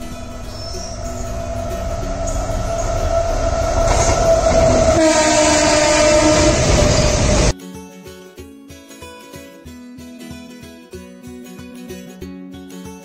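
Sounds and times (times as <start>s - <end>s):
lower horn tone: 0.0s - 7.5s
train horn blast: 0.0s - 7.5s
train rumbling: 0.0s - 7.5s.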